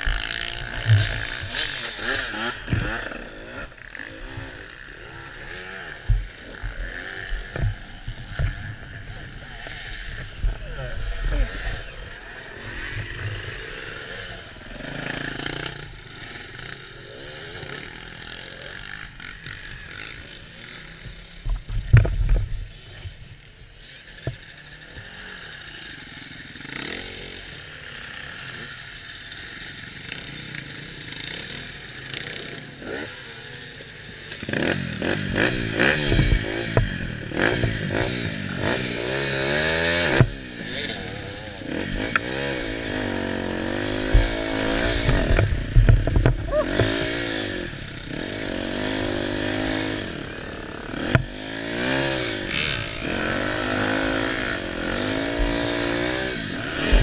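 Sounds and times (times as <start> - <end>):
dirt bike engine revving: 0.0 - 57.0
knocks and clatter through frame: 21.4 - 22.6, 35.9 - 37.8, 43.8 - 47.2.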